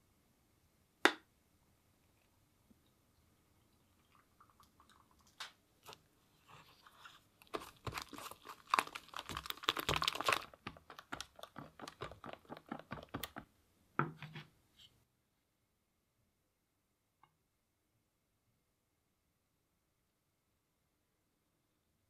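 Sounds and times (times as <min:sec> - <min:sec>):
scattered clicks and taps: 0:09.3 - 0:13.5.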